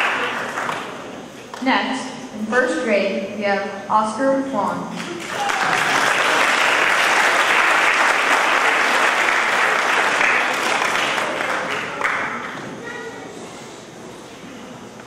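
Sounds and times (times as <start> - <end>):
audience applauding: 0.0 - 1.1, 5.0 - 12.6.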